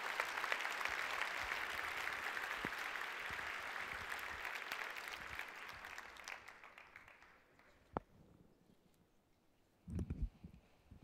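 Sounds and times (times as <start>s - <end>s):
audience applauding: 0.0s - 7.9s.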